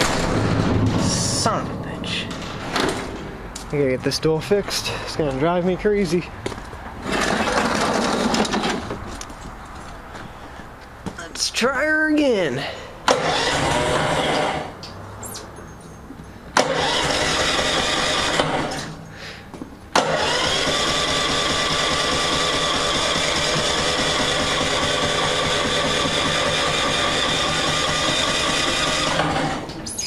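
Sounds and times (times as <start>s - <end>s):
electric starter cranking engine: 7.0s - 8.9s, 13.1s - 14.8s, 16.6s - 19.0s, 19.9s - 29.7s.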